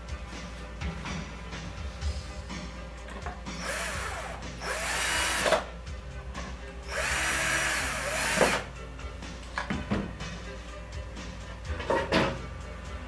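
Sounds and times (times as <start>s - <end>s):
drill driving screws into wood: 3.6s - 5.7s, 6.9s - 8.7s.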